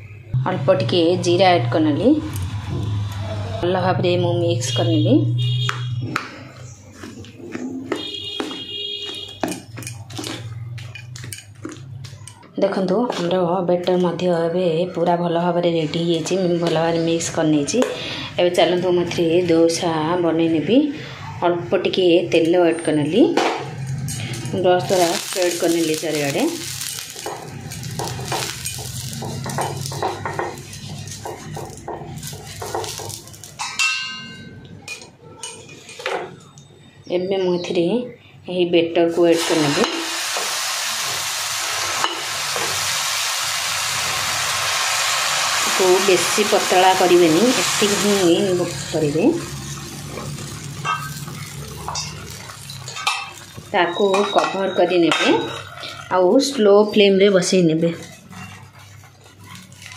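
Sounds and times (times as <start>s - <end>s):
metal utensil clink: 26.6s - 36.0s, 49.4s - 56.0s
spoon scraping steel bowl: 57.8s - 59.9s.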